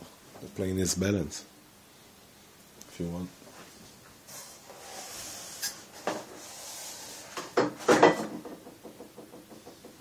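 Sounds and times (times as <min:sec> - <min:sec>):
rubbing hiss: 0:04.2 - 0:07.6.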